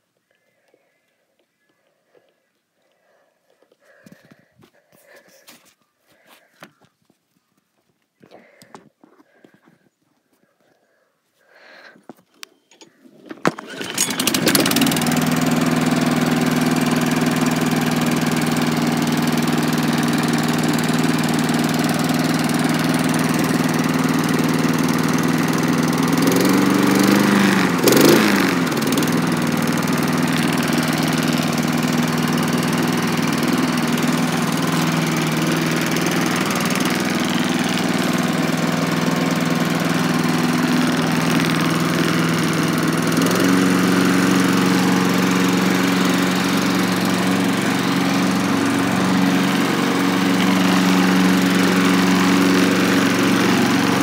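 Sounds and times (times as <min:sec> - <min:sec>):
lawnmower engine running: 0:13.2 - 0:54.0.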